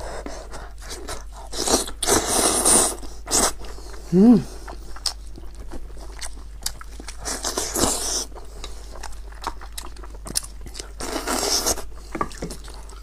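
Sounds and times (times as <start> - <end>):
biting and chewing meat: 4.6 - 13.0.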